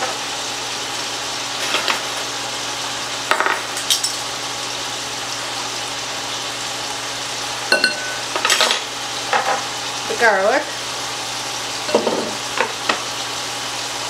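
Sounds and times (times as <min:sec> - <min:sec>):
chicken sizzling in frying pan: 0:00.0 - 0:14.0
metal spoon clinking: 0:07.7 - 0:08.7.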